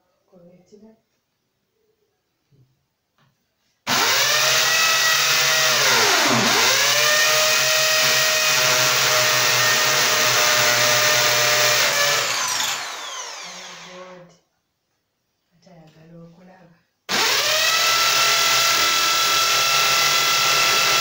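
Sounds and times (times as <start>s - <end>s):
electric drill drilling into wall: 3.9s - 14.2s, 17.1s - 21.0s.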